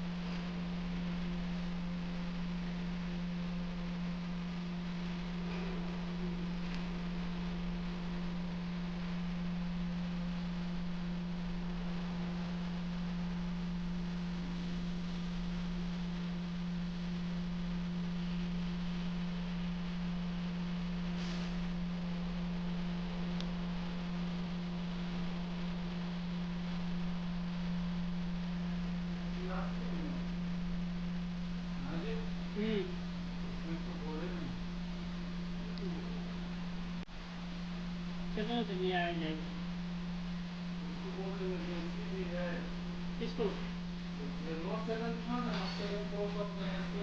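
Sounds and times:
steady low hum: 0.0s - 47.0s
brief soft hiss: 21.2s - 21.6s.

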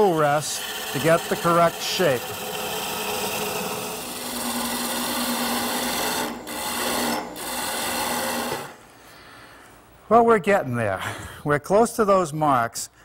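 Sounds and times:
gouge rasping on spinning wood: 0.0s - 8.7s
lathe humming: 0.0s - 8.8s.

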